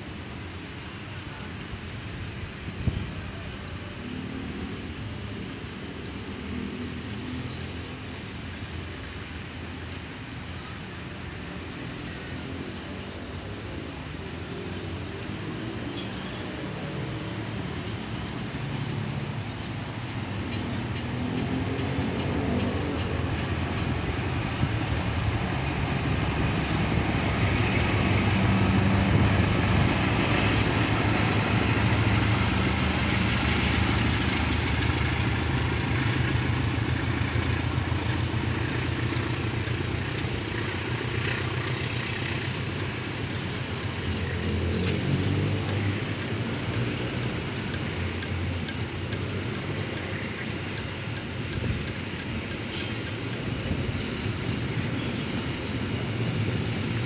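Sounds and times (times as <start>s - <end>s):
train wheel clicks: 0.8s - 2.6s, 5.4s - 13.2s, 14.6s - 15.5s, 33.6s - 54.5s
locomotive engine running: 4.7s - 15.5s, 30.0s - 54.0s.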